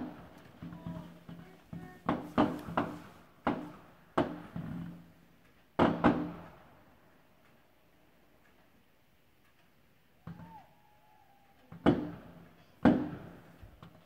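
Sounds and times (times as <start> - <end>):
fireworks bursting with echo: 0.0 - 5.2, 5.8 - 6.8, 11.6 - 14.0.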